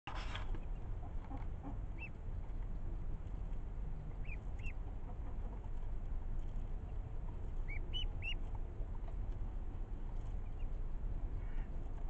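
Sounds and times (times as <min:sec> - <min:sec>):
steady low rumble: 0:00.1 - 0:12.0
ducklings peeping: 0:00.5 - 0:02.2, 0:03.5 - 0:05.8, 0:06.5 - 0:09.2, 0:10.2 - 0:12.0.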